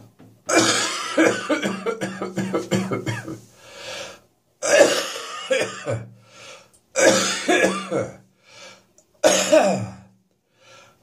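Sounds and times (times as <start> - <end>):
person coughing harshly: 0.5 - 3.4, 4.6 - 6.1, 7.0 - 8.2, 9.2 - 10.1
drawn breath in: 3.5 - 4.3, 6.2 - 6.8, 8.4 - 8.9, 10.5 - 11.0.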